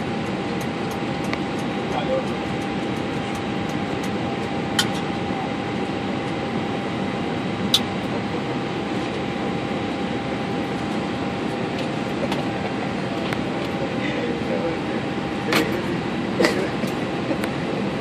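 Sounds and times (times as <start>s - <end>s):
rushing air and fan noise: 0.0s - 18.0s
thin steady whine: 0.0s - 18.0s.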